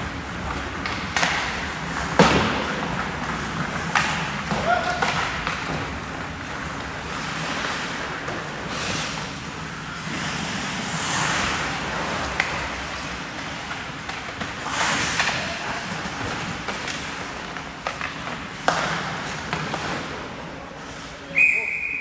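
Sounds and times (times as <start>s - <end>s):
skate blades scraping ice: 0.0s - 21.3s
hockey sticks and puck clacking: 0.0s - 22.0s.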